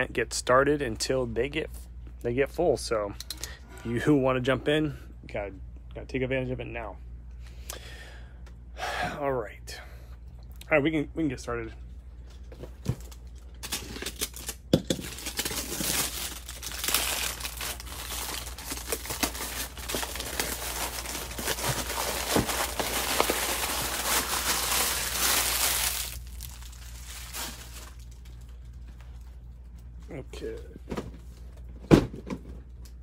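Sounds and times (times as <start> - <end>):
plastic wrap crinkling and tearing: 13.0 - 29.2.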